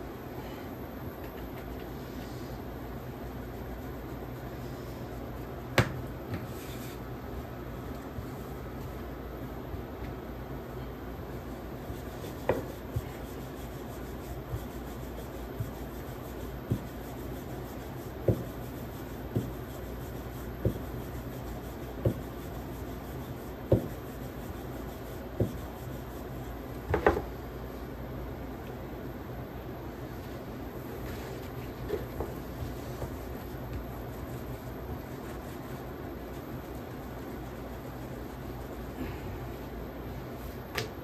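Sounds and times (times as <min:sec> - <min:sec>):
rolling pin rubbing dough: 0:01.4 - 0:09.0, 0:11.3 - 0:27.3, 0:30.2 - 0:39.2.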